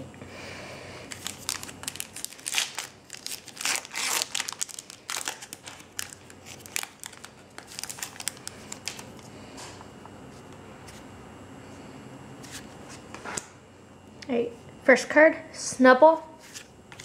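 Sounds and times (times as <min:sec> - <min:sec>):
foil wrapper crinkling: 0:01.1 - 0:09.2.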